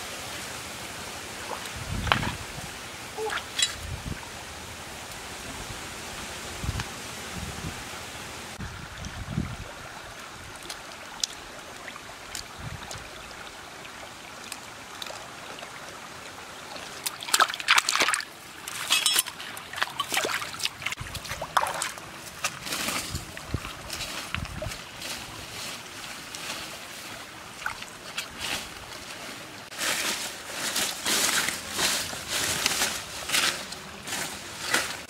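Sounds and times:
water splashing: 0:00.0 - 0:04.3, 0:08.5 - 0:35.0
stream trickling over rocks: 0:08.0 - 0:35.0.

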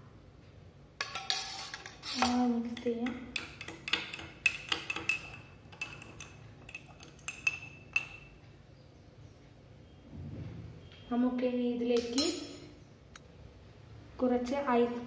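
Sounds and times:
spoon clinking against glass: 0:03.0 - 0:08.4.

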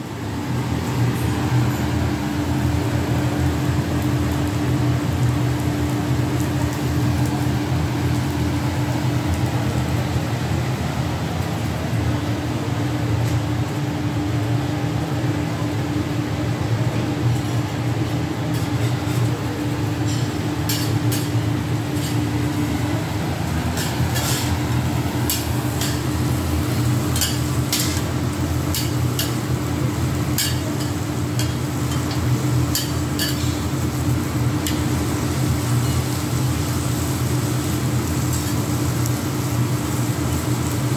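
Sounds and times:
food sizzling on griddle: 0:00.0 - 0:40.9
metal spatulas tapping griddle: 0:20.1 - 0:21.4, 0:27.1 - 0:28.1, 0:28.7 - 0:29.4, 0:30.3 - 0:33.6.

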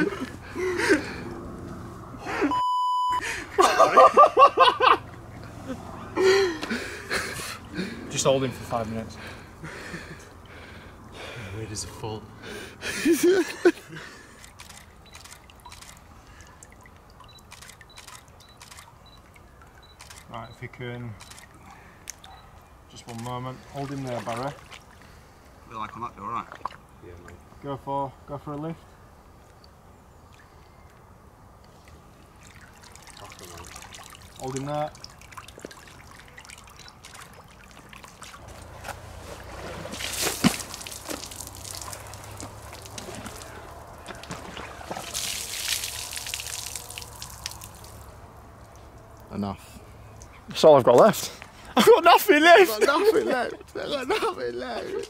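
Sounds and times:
short high beeps: 0:02.5 - 0:03.2
camera shutter clicking: 0:14.4 - 0:16.0, 0:17.4 - 0:19.0
water dripping and trickling: 0:14.8 - 0:22.4, 0:23.2 - 0:27.3, 0:31.6 - 0:38.8, 0:39.6 - 0:49.4, 0:50.1 - 0:50.4.

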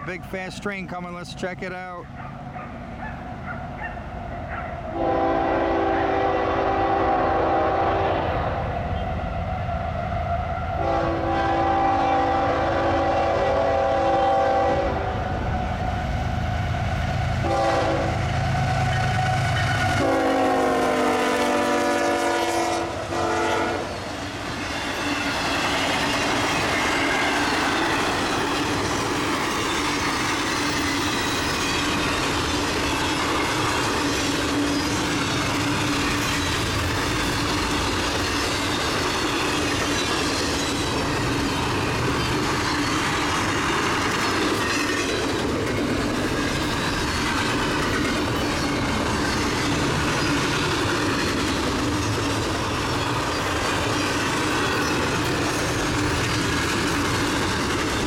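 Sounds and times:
train cars clickety-clack: 0:00.0 - 0:08.0, 0:08.9 - 0:58.0
locomotive air horn: 0:04.9 - 0:09.7, 0:10.8 - 0:15.2, 0:17.4 - 0:23.9.

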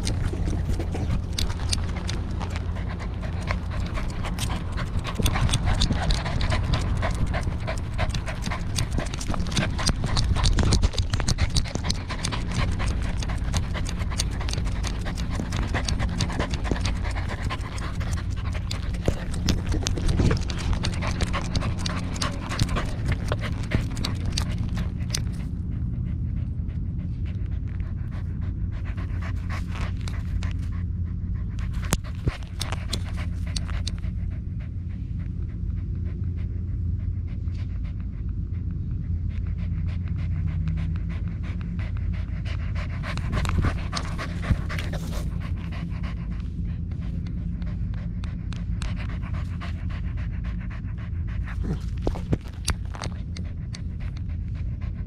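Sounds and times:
clicking and rattling: 0:00.0 - 0:25.5, 0:31.6 - 0:34.1, 0:42.3 - 0:46.4
dog panting: 0:00.0 - 0:55.0.

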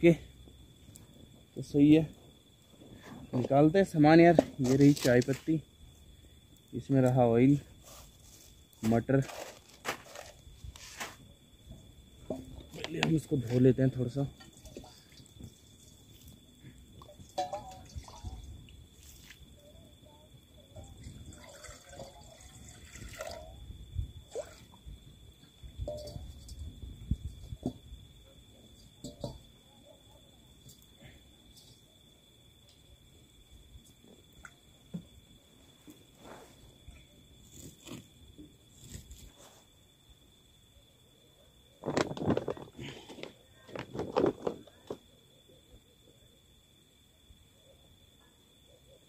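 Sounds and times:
high insect trill: 0:00.0 - 0:49.0
water splashing in a pot: 0:17.1 - 0:18.5, 0:21.0 - 0:23.6.

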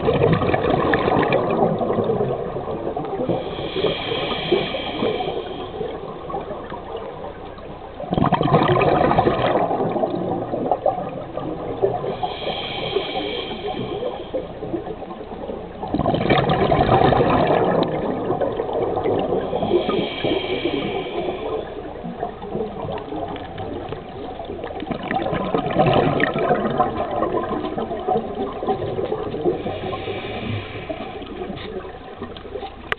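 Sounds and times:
exhaled bubbles rushing underwater: 0:00.0 - 0:32.9
regulator hissing on inhales: 0:03.3 - 0:06.8, 0:12.0 - 0:15.3, 0:19.2 - 0:22.2, 0:29.4 - 0:31.9.

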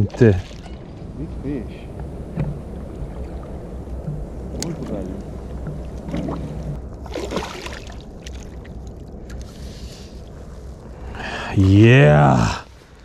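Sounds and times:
steady low rumble: 0:00.0 - 0:13.0
fish splashing in water: 0:06.0 - 0:08.7.

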